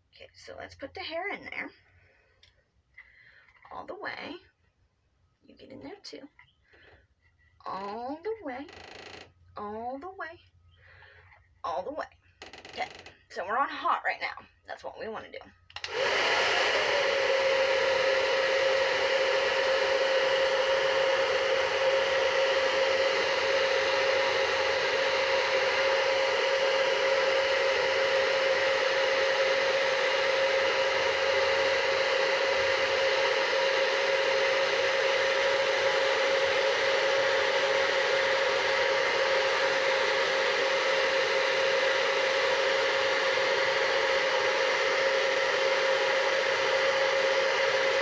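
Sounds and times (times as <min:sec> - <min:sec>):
hair dryer running: 0:15.7 - 0:48.0.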